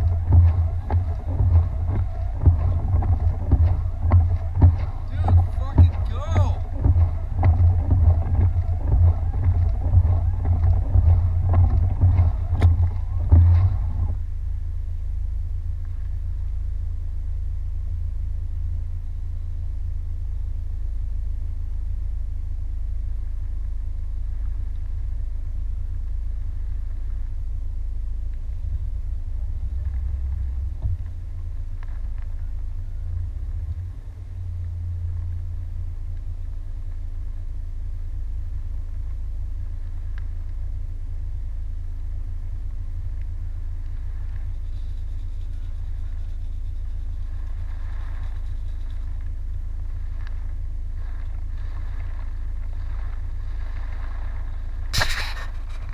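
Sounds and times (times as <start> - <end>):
tyres on wet road: 0.0 - 14.3
car engine rumble: 0.0 - 55.9
faint ticks: 38.4 - 40.9.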